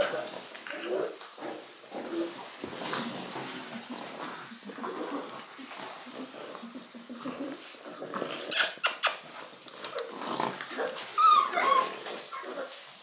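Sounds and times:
puppies growling: 0.0 - 13.0
puppy yelping: 10.7 - 12.8.

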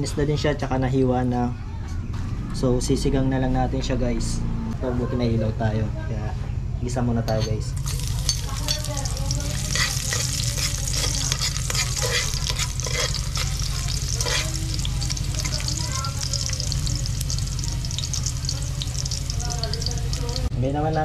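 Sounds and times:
metal spoon scraping pot: 7.3 - 20.2
garlic sizzling in oil: 7.8 - 20.5.

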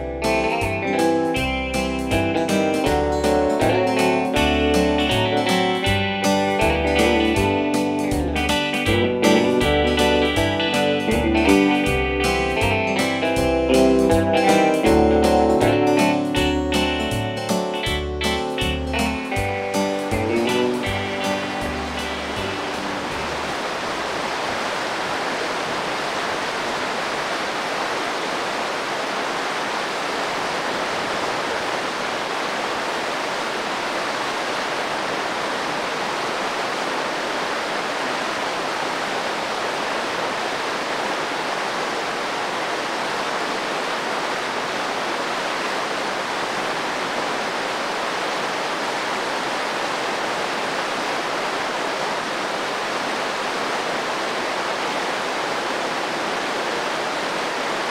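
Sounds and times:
water rushing over boulders: 20.7 - 57.9.

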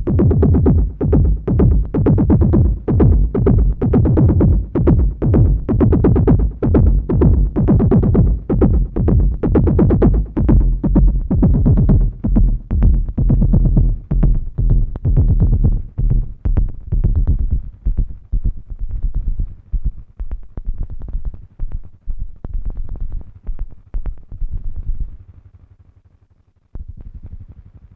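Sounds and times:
electronic techno music: 0.0 - 19.7.

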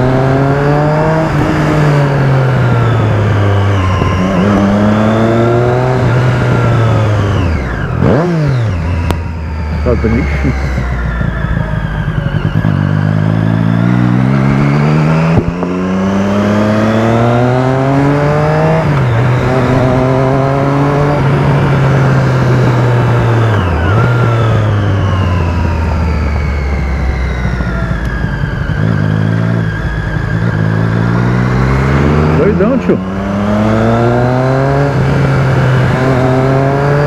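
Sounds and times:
vehicle engine accelerating: 0.0 - 37.0.

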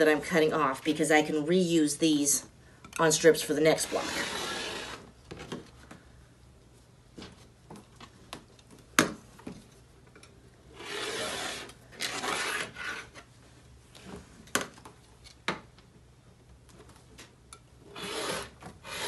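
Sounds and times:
rotary cutter rasping through fabric: 3.8 - 5.1, 10.8 - 13.2, 17.9 - 19.0.

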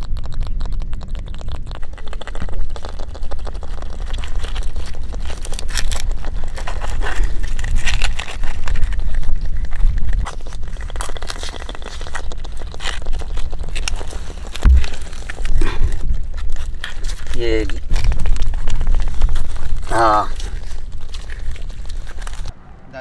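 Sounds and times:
crab crackling and clicking: 0.0 - 22.5
steady low rumble: 14.6 - 16.4.

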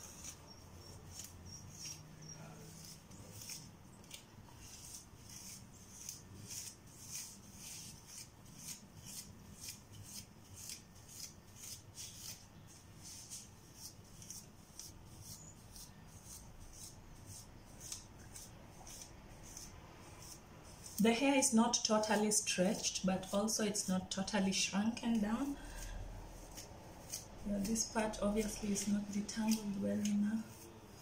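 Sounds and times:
comb rasping through hair: 0.0 - 31.0.

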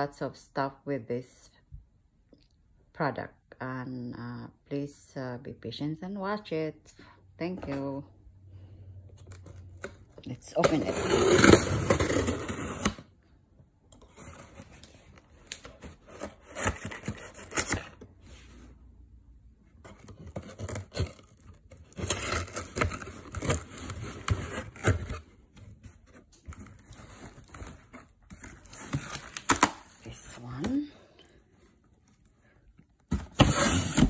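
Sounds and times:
packing tape tearing: 20.1 - 25.2, 28.5 - 29.9.

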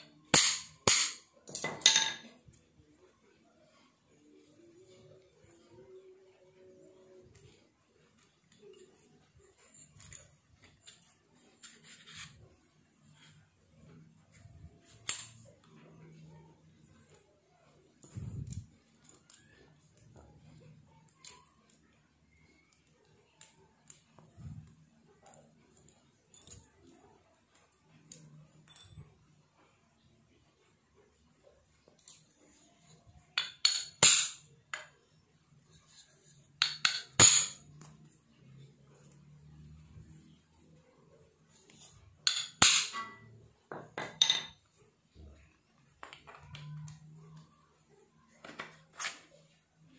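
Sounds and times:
metal parts knocking and clinking: 0.1 - 2.5, 28.1 - 29.3, 33.2 - 35.0, 35.8 - 37.9, 41.8 - 44.7
metal parts rubbing: 8.1 - 13.6.

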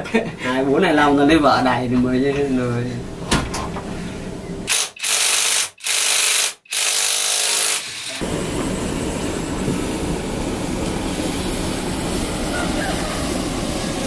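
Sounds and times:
loud hissing bursts: 4.7 - 14.0
low rumbling noise: 8.2 - 14.0.

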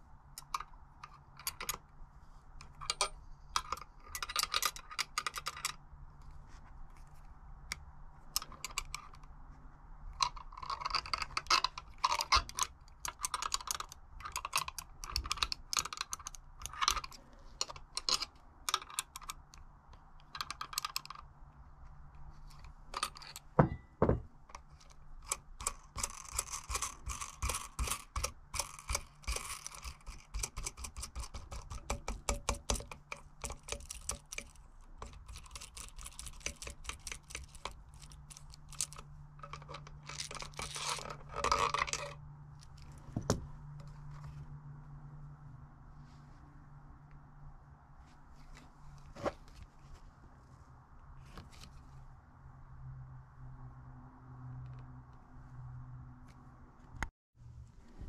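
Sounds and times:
hand tools clicking and tapping: 22.9 - 42.2.

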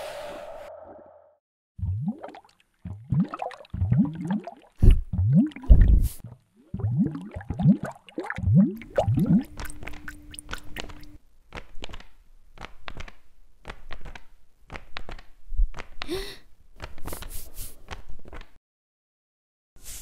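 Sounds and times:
wet squelches drips and plops: 1.8 - 11.2.

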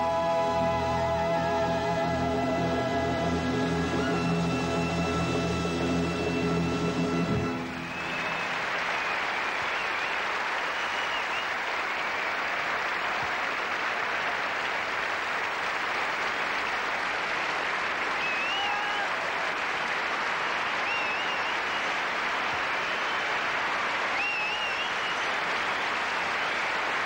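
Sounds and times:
crowd cheering: 0.0 - 27.0
audience applauding: 7.2 - 27.0.

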